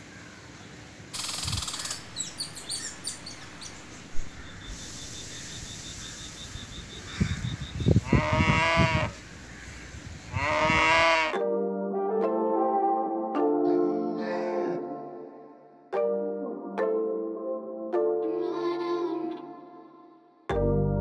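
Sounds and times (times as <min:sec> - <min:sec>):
rapid high pips: 0:01.2 - 0:06.5
bird chirps: 0:01.2 - 0:08.1
rising and falling animal calls: 0:01.2 - 0:11.4.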